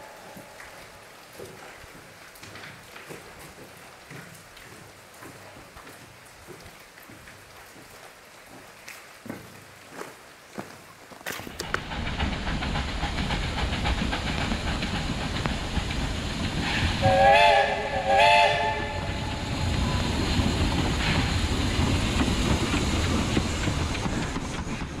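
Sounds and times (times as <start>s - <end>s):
steam locomotive rumbling: 11.3s - 25.0s
steam whistle blasts: 16.7s - 20.0s.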